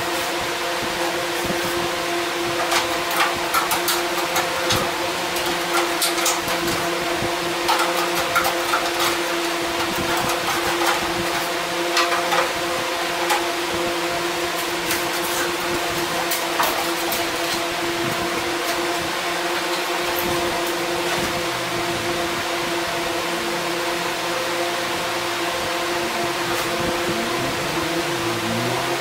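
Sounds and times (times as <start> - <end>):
steady machine hum: 0.0 - 29.0
tools clicking and tapping: 2.6 - 6.9.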